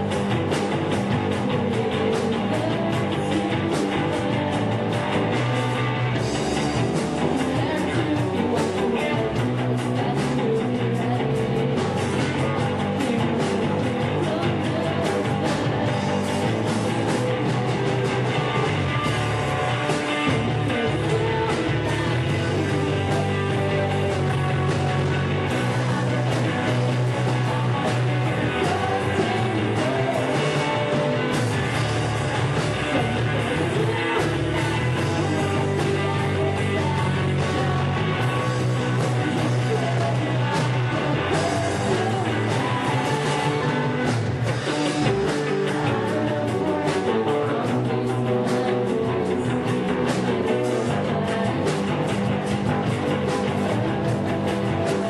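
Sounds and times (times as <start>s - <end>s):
bass guitar: 0.0s - 55.0s
drums: 0.0s - 55.0s
electric guitar: 0.0s - 55.0s
woman singing: 7.3s - 16.0s, 33.4s - 44.2s, 45.4s - 52.2s.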